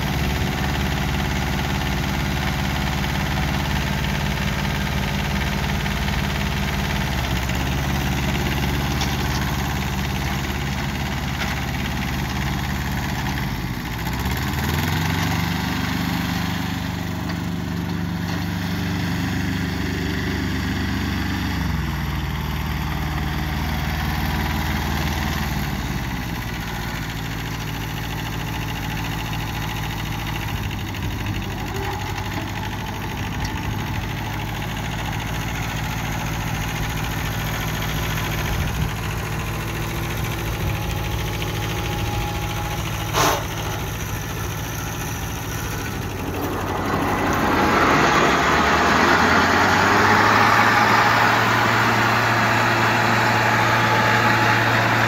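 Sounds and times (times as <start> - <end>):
tractor diesel engine running: 0.0 - 55.0
mower blades rushing: 36.2 - 55.0.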